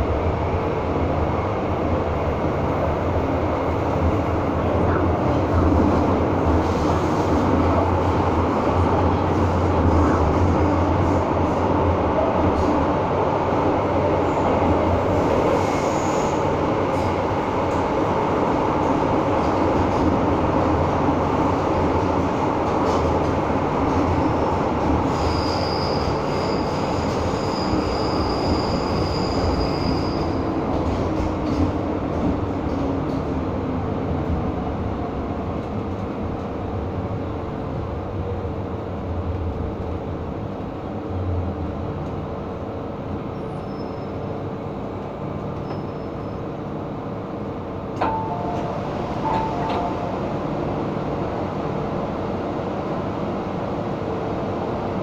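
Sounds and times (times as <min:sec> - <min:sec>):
subway train rumble: 0:00.0 - 0:55.0
high-pitched wheel squeal: 0:25.2 - 0:30.4, 0:43.4 - 0:44.2.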